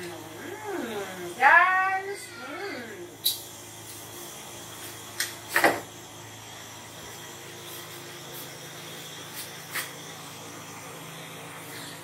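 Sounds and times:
soup pot hissing on gas burner: 0.0s - 12.0s.

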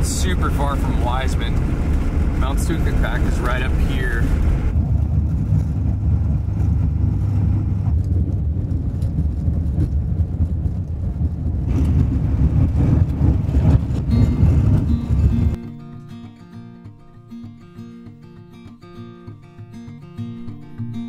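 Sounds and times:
diesel engine low rumble: 0.0s - 15.6s
tyres on snow-packed road: 0.0s - 15.6s.

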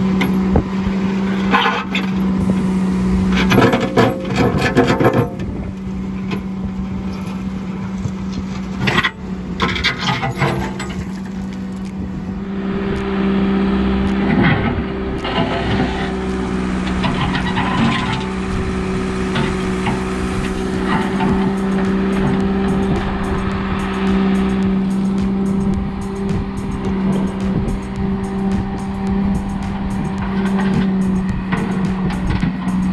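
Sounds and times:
diesel engine running: 0.0s - 32.9s.

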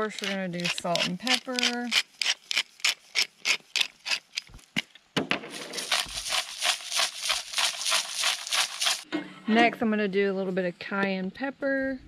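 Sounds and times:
pepper grinder grinding: 0.0s - 4.8s, 5.5s - 9.0s.

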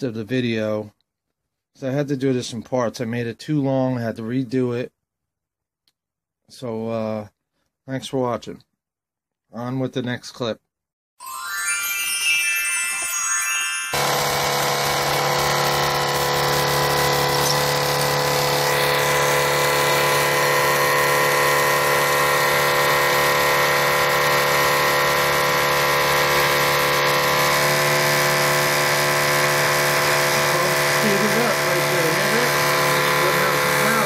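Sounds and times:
cooling fan motor humming: 14.0s - 34.0s.

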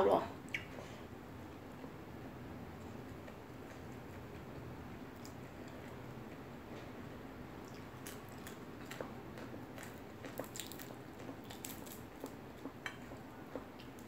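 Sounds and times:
chewing with crunches: 2.9s - 6.9s, 7.6s - 14.0s.

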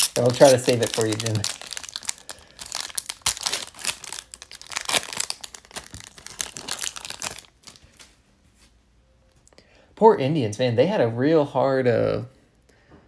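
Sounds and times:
foil wrapper tearing and crinkling: 0.0s - 8.0s.

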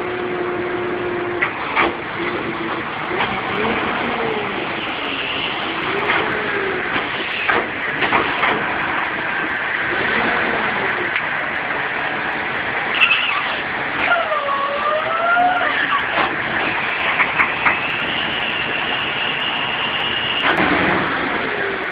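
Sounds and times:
hydraulic whine: 0.0s - 21.9s
tow truck engine running: 0.0s - 21.9s
knocks and clanks: 1.4s - 2.2s, 5.9s - 8.9s, 15.9s - 17.9s.

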